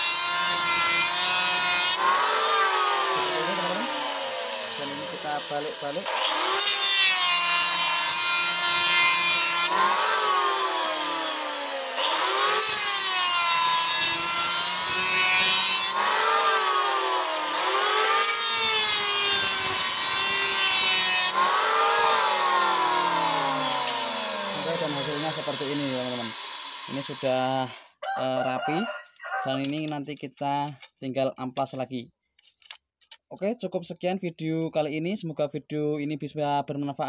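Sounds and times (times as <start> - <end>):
electric planer cutting wood: 0.0 - 27.7.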